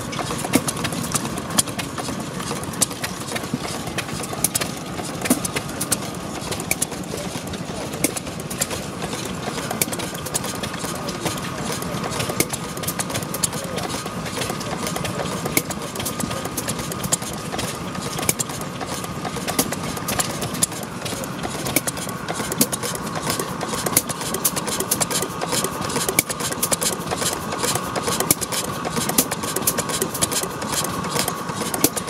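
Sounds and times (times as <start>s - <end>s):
rapid even clicking: 0.0s - 32.0s
stationary gas engine running: 0.0s - 32.0s.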